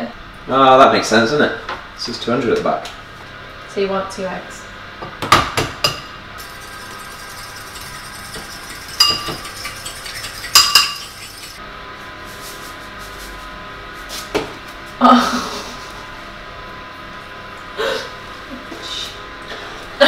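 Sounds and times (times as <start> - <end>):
metal fork clinking on ceramic bowl: 6.9 - 11.6.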